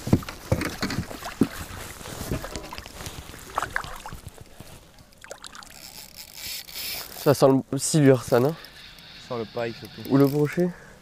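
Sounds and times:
clothing and gear rustling: 0.0s - 7.4s.

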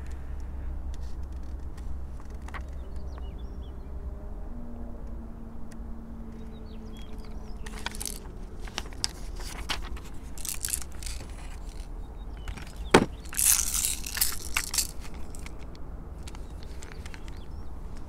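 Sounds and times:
paper crackling and rustling: 7.1s - 15.7s, 16.3s - 17.5s.

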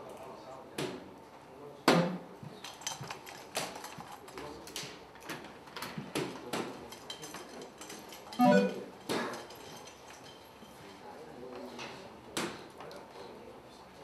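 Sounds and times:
darts hitting dartboards: 1.9s - 2.3s.

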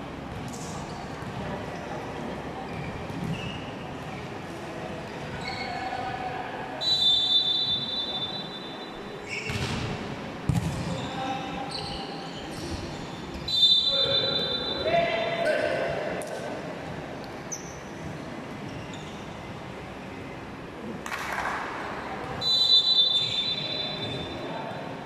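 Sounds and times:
crowd chatter: 0.0s - 25.0s
referee's whistle: 6.8s - 9.5s, 13.4s - 14.9s, 22.4s - 24.4s
hits on volleyball: 9.5s - 11.0s.

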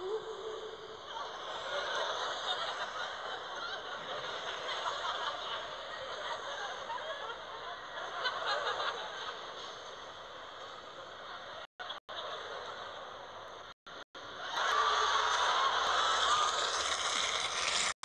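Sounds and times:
echoing children's voices: 0.0s - 2.0s.

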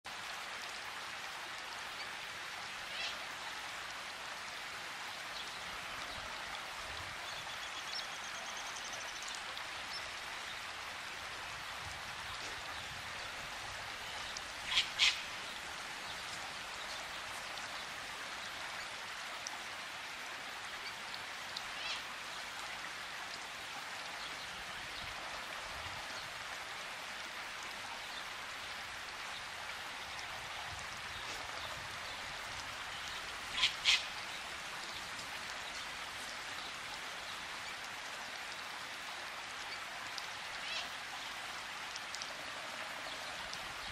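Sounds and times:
steady rain hiss: 0.0s - 43.9s
bird calls: 14.7s - 15.2s.

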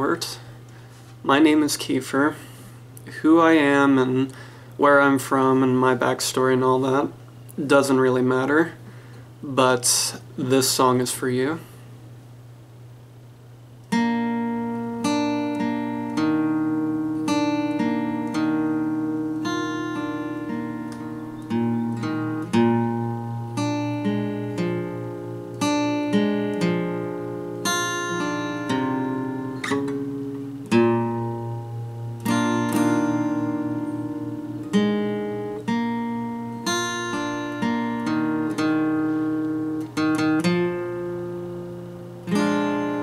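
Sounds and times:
acoustic guitar playing: 13.8s - 43.0s.

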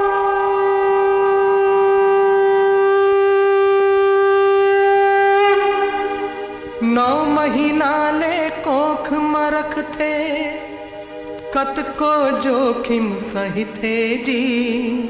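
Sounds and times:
conch shell blown: 0.0s - 8.8s
music with wavering melody: 0.0s - 15.0s.

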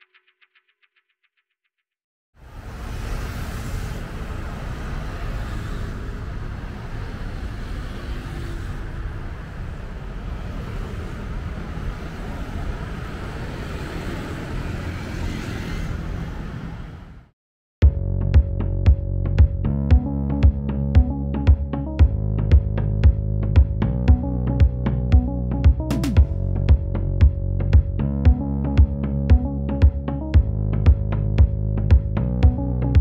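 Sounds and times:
busy road traffic: 2.4s - 17.3s.

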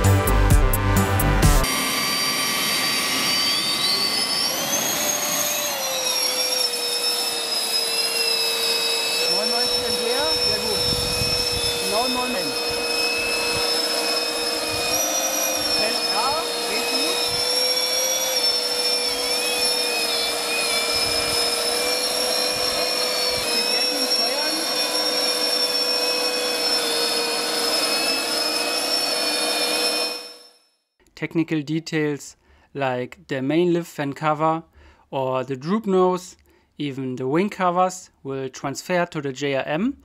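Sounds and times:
electric ducted fans whining: 1.6s - 30.4s.

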